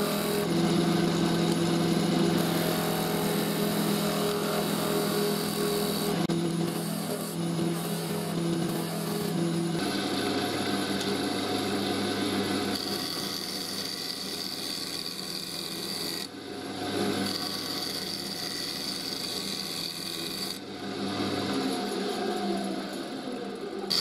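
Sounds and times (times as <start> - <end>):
wood lathe motor hum: 0.0 - 24.0
turning tool rasping on wood: 2.0 - 10.8, 12.4 - 16.3, 16.9 - 20.6.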